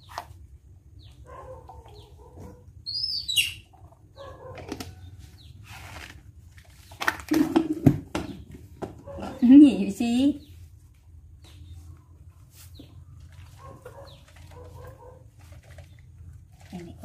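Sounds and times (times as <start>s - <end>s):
baby monkey squeaking: 2.9s - 3.7s.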